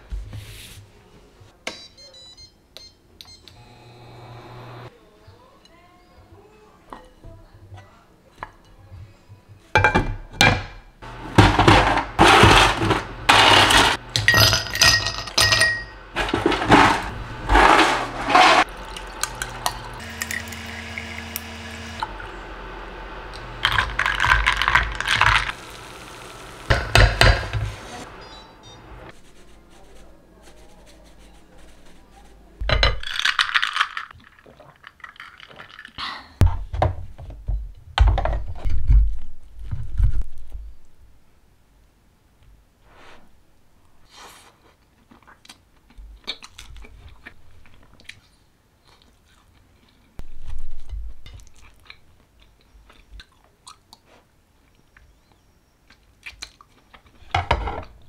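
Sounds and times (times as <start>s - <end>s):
dishes and cutlery clinking: 13.4s - 17.0s
steady hum: 15.8s - 29.6s
coffee poured over ice: 23.6s - 25.6s
spatula knocking on frying pan: 26.7s - 27.6s.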